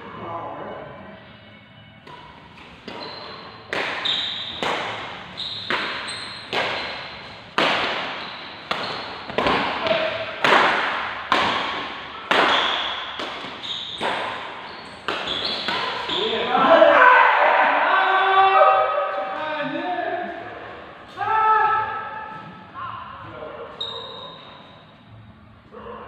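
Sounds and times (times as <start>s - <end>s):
rackets smacking shuttlecock: 2.0s - 16.3s.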